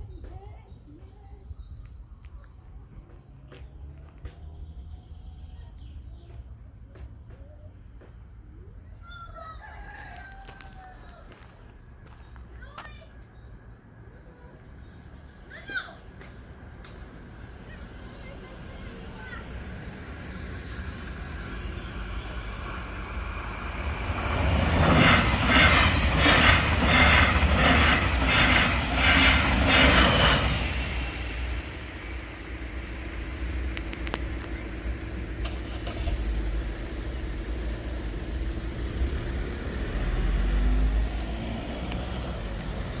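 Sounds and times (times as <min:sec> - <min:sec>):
train wheels passing: 0:11.5 - 0:43.0
car pulling away: 0:30.9 - 0:43.0.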